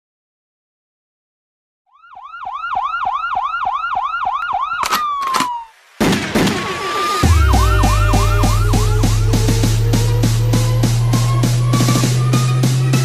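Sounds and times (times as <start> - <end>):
yelp siren wailing: 1.9 - 5.8, 6.6 - 13.0
sharp hits: 6.0 - 13.0
deep bass beat: 7.2 - 13.0.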